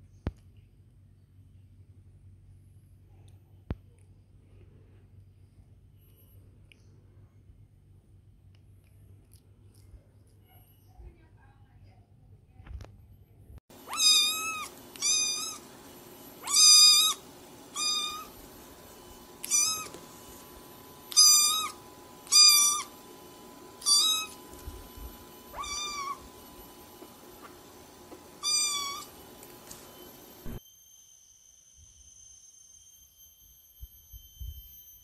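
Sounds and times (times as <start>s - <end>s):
cat meowing: 13.8s - 15.6s, 16.4s - 18.4s, 19.4s - 20.0s, 21.1s - 22.9s, 23.8s - 24.4s, 25.5s - 26.3s, 28.4s - 29.1s.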